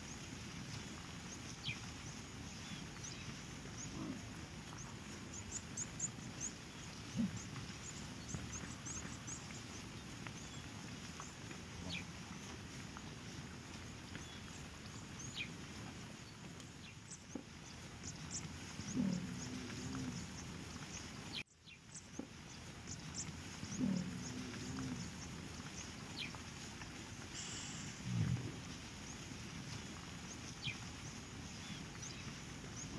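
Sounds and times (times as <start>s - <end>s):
faint steady hiss: 0.0s - 32.9s
leopard growling low: 2.6s - 13.1s, 18.6s - 20.6s, 23.5s - 25.6s, 27.8s - 29.0s.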